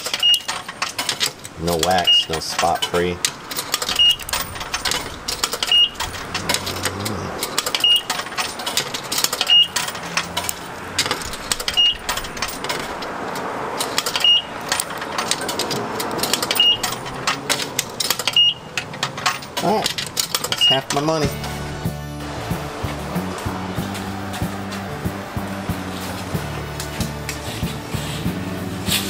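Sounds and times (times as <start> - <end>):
coins clinking: 0.0 - 21.7
background noise: 0.0 - 29.0
short high beeps: 7.8 - 8.1.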